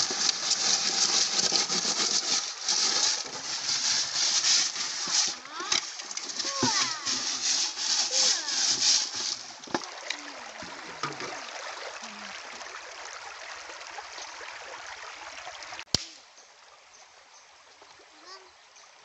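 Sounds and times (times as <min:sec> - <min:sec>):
food scrubbed in pot of water: 0:00.0 - 0:09.8
water poured out of pot: 0:00.0 - 0:11.8.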